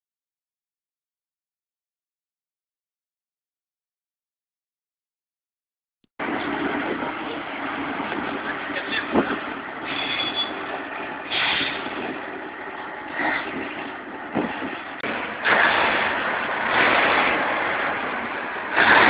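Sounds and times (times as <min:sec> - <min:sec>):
dump truck running: 0:06.2 - 0:19.0.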